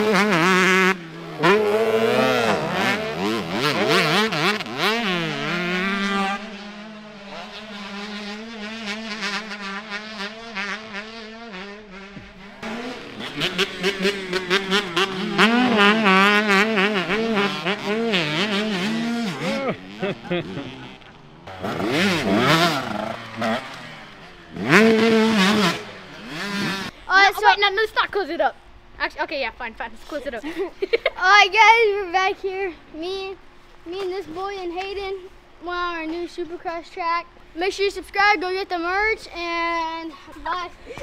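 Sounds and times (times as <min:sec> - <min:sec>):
motocross bikes revving: 0:00.0 - 0:28.4.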